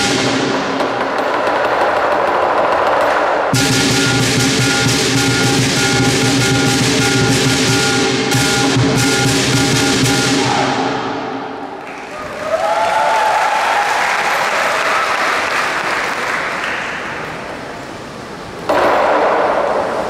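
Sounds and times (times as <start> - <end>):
loud drum percussion: 0.0 - 1.4, 3.5 - 11.4
cheering voices: 10.4 - 11.0, 11.6 - 17.2
audience applauding: 11.8 - 17.3.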